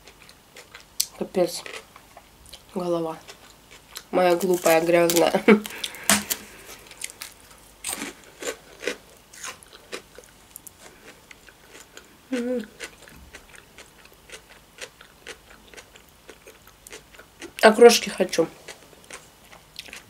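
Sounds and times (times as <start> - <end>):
lip smacks: 5.6 - 7.2
person humming mm: 12.3 - 12.8
wet chewing clicks: 18.7 - 20.0.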